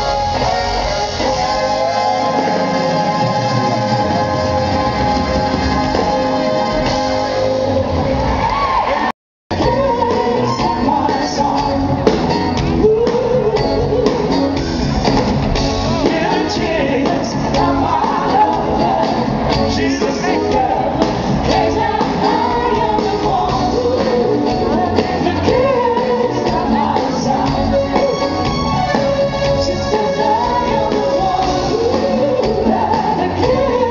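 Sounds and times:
saxophone section: 0.0 - 9.0, 27.6 - 30.7
singers: 0.0 - 14.8, 15.7 - 33.9
live soul band playing: 0.0 - 33.9.

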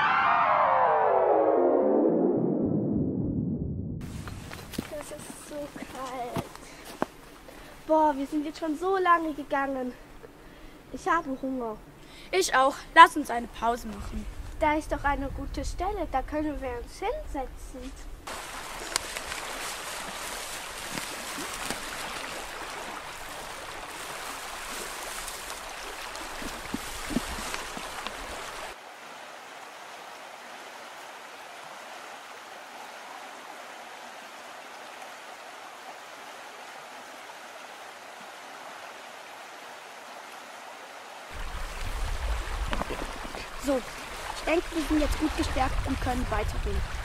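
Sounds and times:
low rumble: 0.0 - 4.6
stream rushing: 4.0 - 11.3, 18.2 - 47.0.

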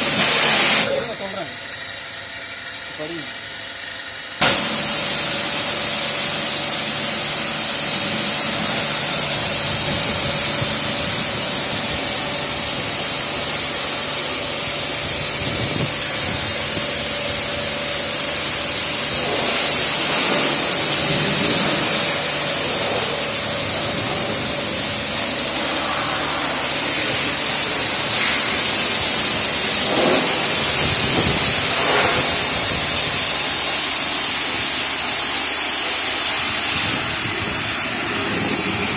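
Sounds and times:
water jet spraying hiss: 0.0 - 1.0, 4.4 - 38.9
pump motor hum: 2.9 - 38.9.

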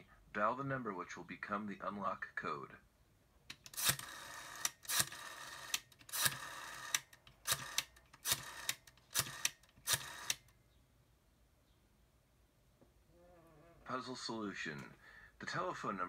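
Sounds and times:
rotary telephone dial clicking: 3.5 - 10.5.

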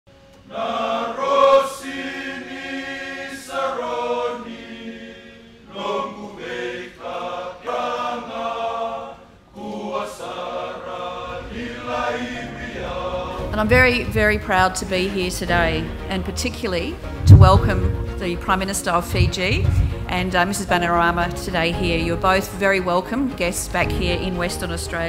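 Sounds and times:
male choir singing: 0.4 - 16.1.

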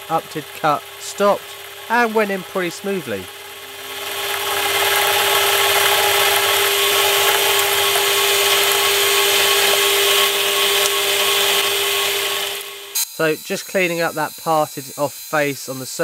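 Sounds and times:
lathe motor hum: 0.0 - 16.0
blade cutting steel hiss: 12.9 - 16.0.

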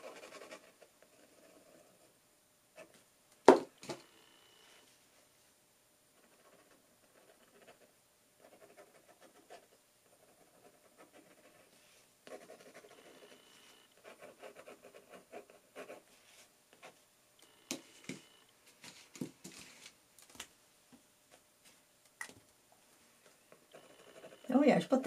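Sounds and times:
pen nib scratching on paper: 6.2 - 11.7, 12.3 - 16.0, 23.6 - 24.8.

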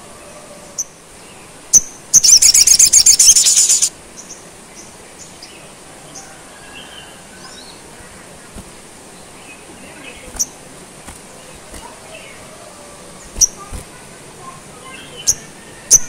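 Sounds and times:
sunbird rattling trill: 1.7 - 3.9, 13.2 - 14.0
bird high chips: 2.2 - 3.9.

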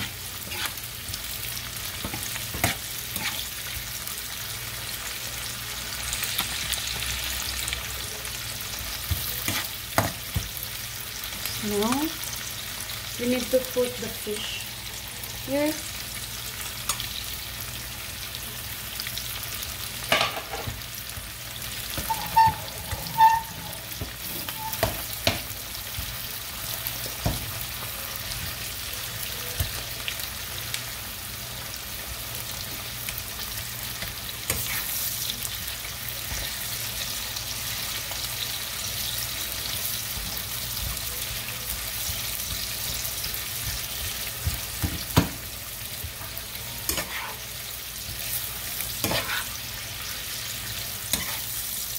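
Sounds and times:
spoon stirring and knocking pan: 0.0 - 1.2, 2.0 - 3.5, 8.8 - 10.6, 20.1 - 20.8, 21.9 - 26.2, 26.9 - 27.6, 40.0 - 47.4, 48.0 - 49.6, 51.1 - 51.5
food sizzling in frying pan: 0.0 - 51.9.

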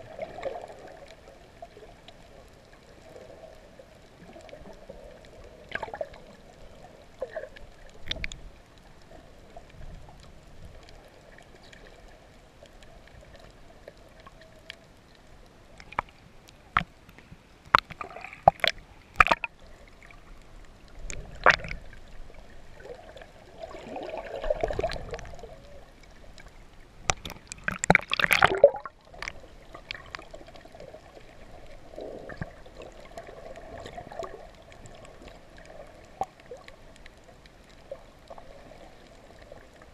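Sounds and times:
muffled underwater water movement: 0.0 - 39.9
sharp splashes and knocks: 17.7 - 19.5, 21.4 - 21.8, 27.1 - 28.9.

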